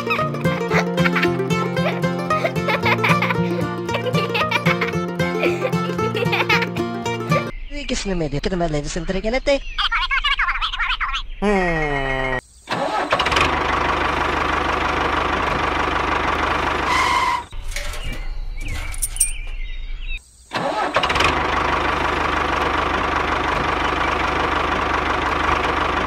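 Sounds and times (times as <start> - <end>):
tractor engine running: 0.0 - 7.5, 13.1 - 19.8, 21.0 - 26.0.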